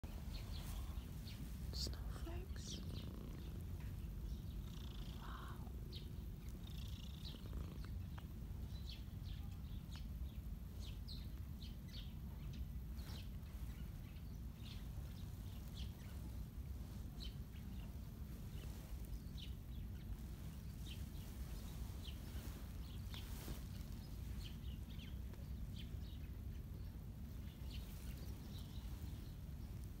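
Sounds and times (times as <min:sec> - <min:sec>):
cat purring: 0:00.1 - 0:08.8
faint bird chirps: 0:00.1 - 0:30.0.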